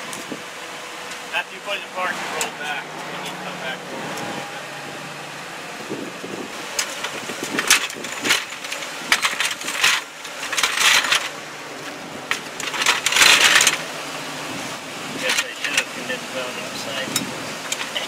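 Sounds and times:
metal clanks and scrapes: 6.7 - 13.9, 15.2 - 15.9, 17.0 - 18.0.

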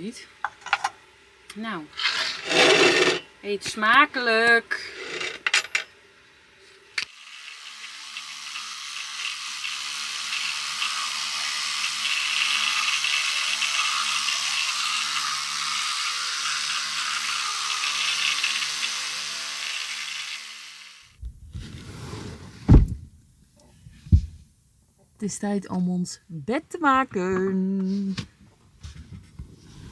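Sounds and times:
electric toothbrush buzz: 2.0 - 3.3, 7.0 - 21.2.

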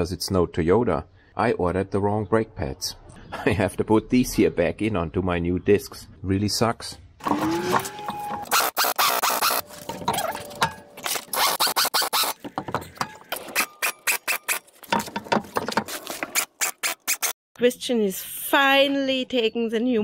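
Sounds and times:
short squeaks: 7.3 - 12.4
metallic clanks and scraping of tools: 9.6 - 11.4, 12.3 - 16.4.

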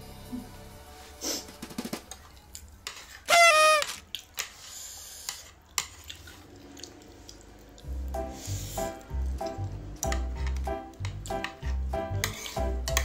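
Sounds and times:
short loud squeak: 3.3 - 4.0.

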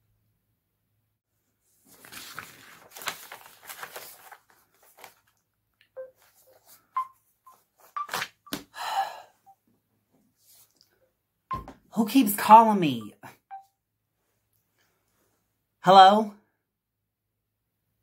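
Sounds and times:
clothing and chair rustling: 1.6 - 5.4.

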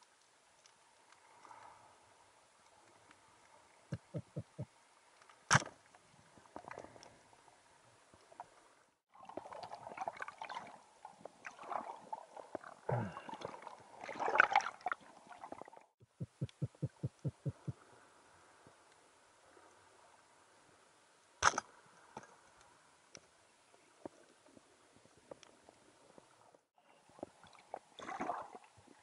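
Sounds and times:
underwater clicks: 3.9 - 4.7, 16.2 - 17.8
churning gurgling water: 9.1 - 17.8, 27.2 - 29.0.

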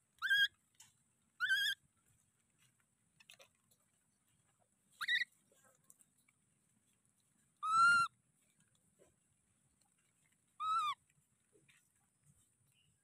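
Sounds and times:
baby monkey coo calls: 0.2 - 0.5, 1.4 - 1.8, 5.0 - 5.3, 7.6 - 8.1, 10.6 - 11.0.

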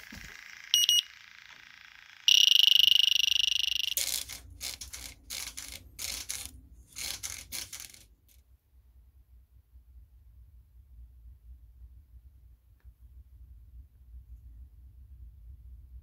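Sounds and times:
steady alarm tone: 0.0 - 4.3
leak detector beeping: 0.0 - 4.4.

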